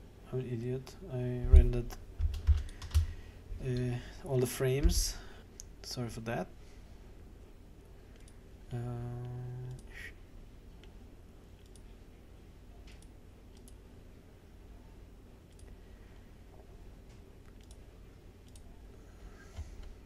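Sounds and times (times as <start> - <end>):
low background noise: 0.0 - 20.0
faint computer mouse clicks: 11.6 - 11.9, 12.9 - 13.8, 17.4 - 17.8.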